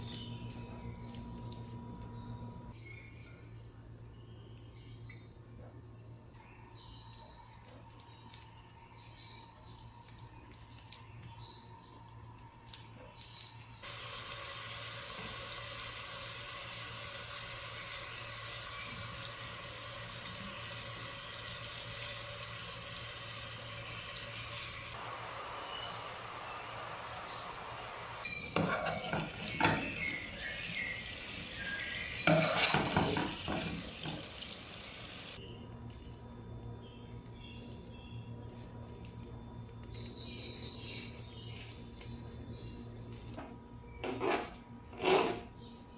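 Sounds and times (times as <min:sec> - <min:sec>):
meatballs sizzling in oil: 0:13.8 - 0:35.4
spatula scraping pot: 0:28.4 - 0:30.2, 0:32.2 - 0:34.2, 0:44.0 - 0:45.5.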